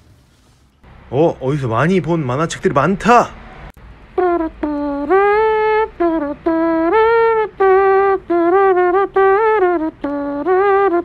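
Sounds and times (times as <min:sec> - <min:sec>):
simple tune of held notes: 0:04.2 - 0:11.0.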